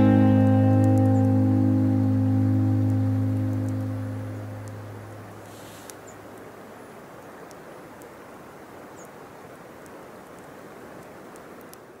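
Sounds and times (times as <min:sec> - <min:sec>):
steady rushing noise: 0:00.0 - 0:08.5
faint high ticks: 0:00.7 - 0:01.4, 0:02.4 - 0:06.5, 0:07.2 - 0:08.1, 0:09.8 - 0:11.9.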